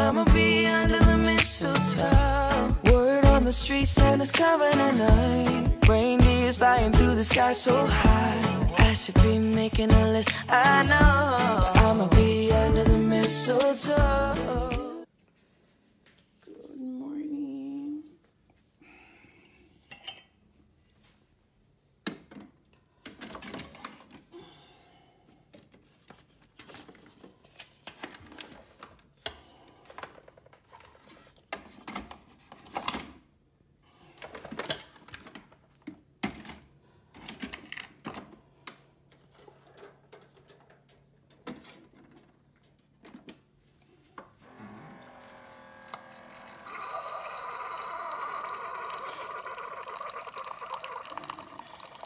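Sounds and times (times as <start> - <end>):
ceramic mugs clattering: 19.8 - 20.4.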